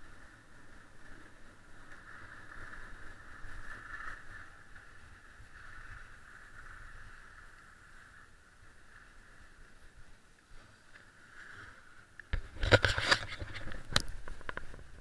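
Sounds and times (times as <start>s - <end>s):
skis sliding over snow: 0.0s - 15.0s
wind rumble on microphone: 12.2s - 15.0s.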